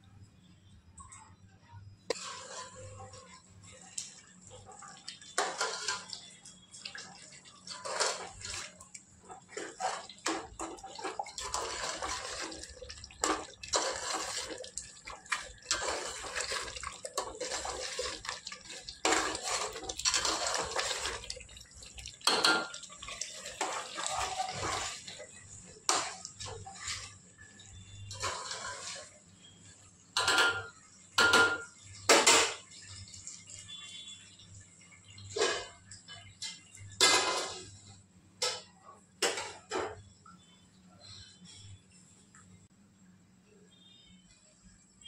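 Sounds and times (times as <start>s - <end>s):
kitchen utensils clicking and knocking: 2.1s - 29.2s, 30.1s - 33.4s, 35.2s - 40.0s
water splashing and sloshing: 2.1s - 40.0s.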